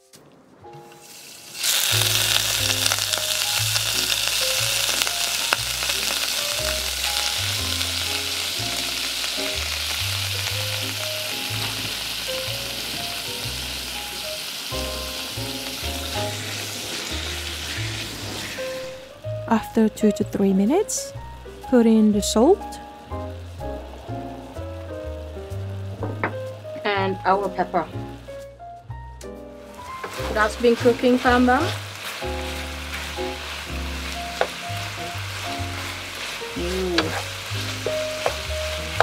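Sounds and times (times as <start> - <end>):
meat sizzling in hot oil: 1.0 - 28.4, 29.4 - 39.0
background music with bass: 1.9 - 39.0
wooden spatula stirring: 29.7 - 39.0.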